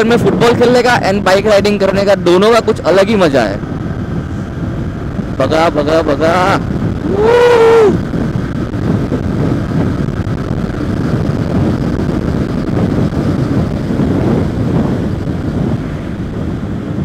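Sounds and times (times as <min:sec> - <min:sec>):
wind rushing over microphone: 0:00.0 - 0:17.0
motorcycle engine running: 0:08.0 - 0:17.0.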